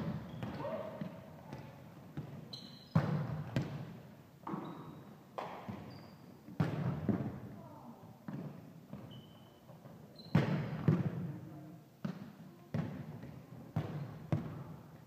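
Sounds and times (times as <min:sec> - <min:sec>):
volleyballs smacking gym floor: 0:00.0 - 0:05.9, 0:06.5 - 0:07.5, 0:08.2 - 0:09.1, 0:09.7 - 0:11.3, 0:12.0 - 0:14.7.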